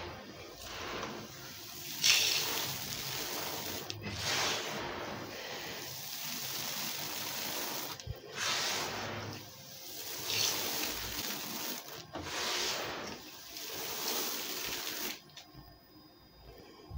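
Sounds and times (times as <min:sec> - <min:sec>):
grit swept across concrete: 0:00.0 - 0:15.2.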